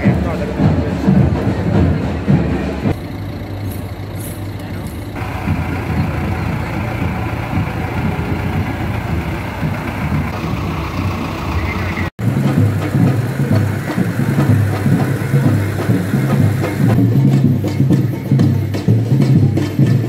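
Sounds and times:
diesel tractor engine running: 2.2 - 17.3.

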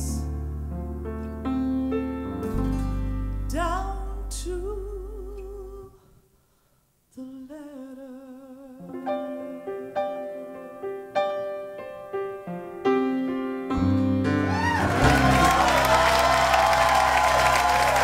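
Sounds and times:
woman singing a ballad: 0.0 - 0.3, 3.4 - 6.1, 7.1 - 9.6
low bass notes: 0.0 - 5.8
piano: 0.0 - 6.0, 8.3 - 18.0.

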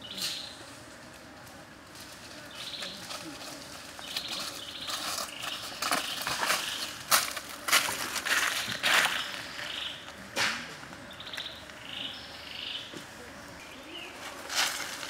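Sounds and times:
birds chirping: 0.0 - 0.7, 2.3 - 15.0
footsteps on dry leaves: 2.0 - 9.9, 14.0 - 15.0.

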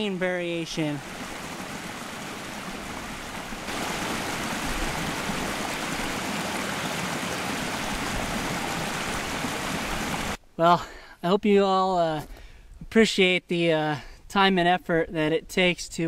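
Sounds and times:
water rushing in stream: 0.0 - 10.4.

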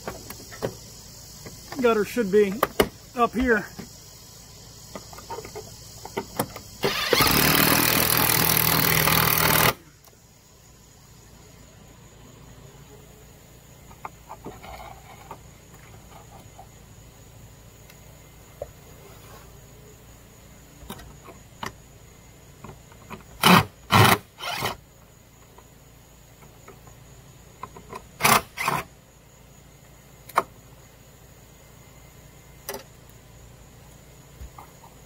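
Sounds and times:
cordless drill driving screws: 6.8 - 9.8.

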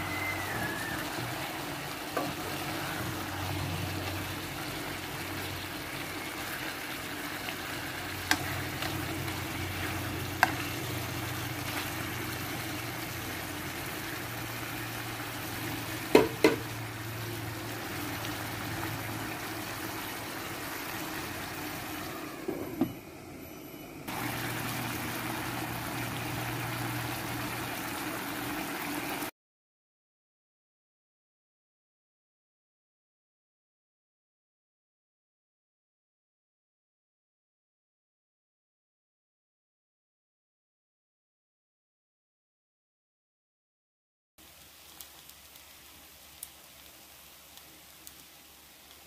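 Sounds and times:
food sizzling in a pan: 0.0 - 22.8, 24.1 - 29.3, 44.4 - 49.0
ladle knocking on pan: 16.1 - 16.7.

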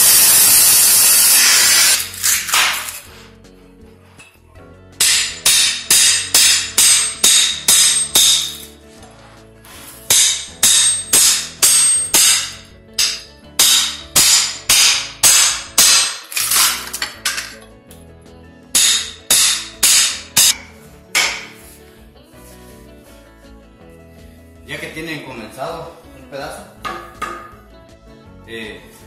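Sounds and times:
hammer striking chisel into wood: 5.0 - 8.6, 10.1 - 16.3, 18.8 - 21.6, 26.8 - 27.5.

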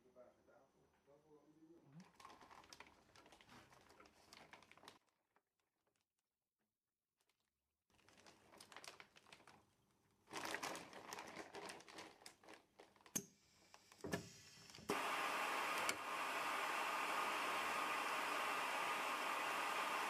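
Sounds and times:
plastic bag crinkling: 2.0 - 6.0, 7.3 - 13.2
vacuum sealer rushing: 14.0 - 20.0.

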